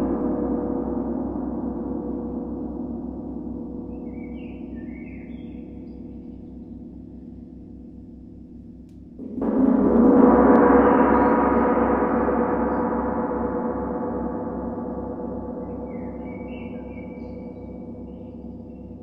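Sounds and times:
low pulsing gong hum: 0.0 - 19.0
large gong ringing: 9.2 - 18.6.

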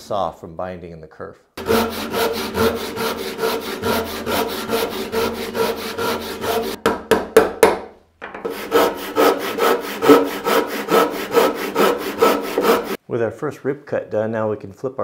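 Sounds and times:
hand saw rasping through wood: 1.6 - 6.8, 8.5 - 13.0.

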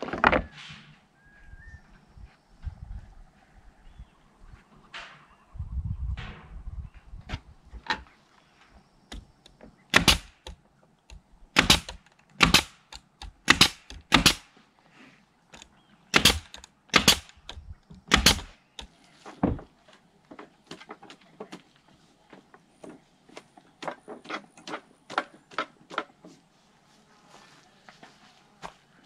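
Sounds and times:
nail gun firing: 9.9 - 10.6, 11.6 - 14.5, 16.1 - 18.5.

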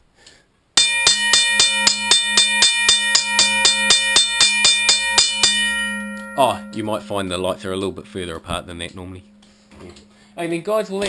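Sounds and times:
railway crossing bell ringing: 0.8 - 11.0.

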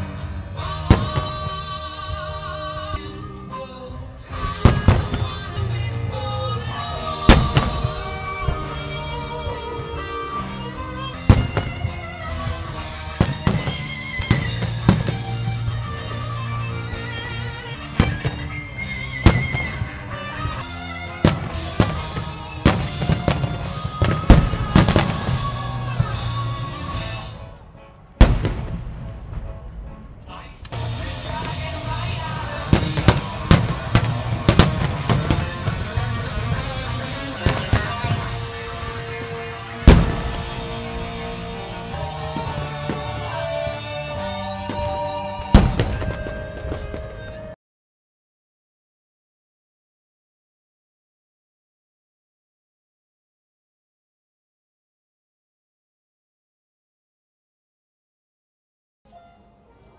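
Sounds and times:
firework bangs: 0.0 - 2.0, 4.3 - 5.8, 7.0 - 8.9, 11.2 - 16.1, 17.8 - 27.4, 28.2 - 30.0, 30.7 - 47.5
music: 0.0 - 47.6, 59.1 - 59.9.

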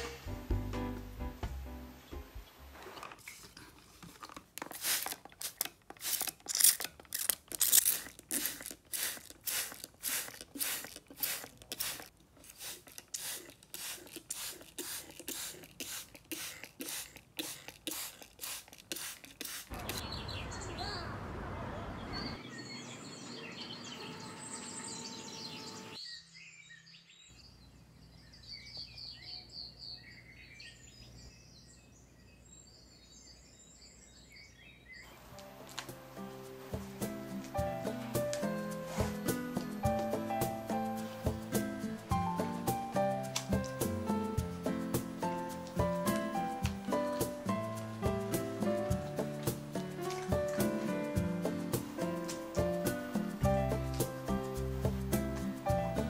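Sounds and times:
spray bottle misting: 4.6 - 20.1, 38.2 - 55.5
birds chirping: 19.7 - 35.4.

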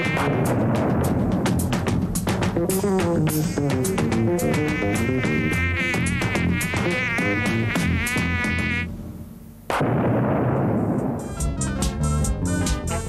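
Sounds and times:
electronic beat: 0.0 - 8.4
buzzing synthesizer line: 2.6 - 8.9.

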